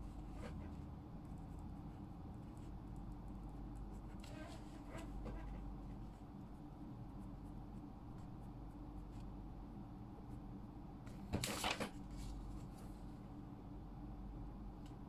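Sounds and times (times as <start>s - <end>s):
low room hum: 0.0s - 15.0s
paper rustling: 11.3s - 12.9s.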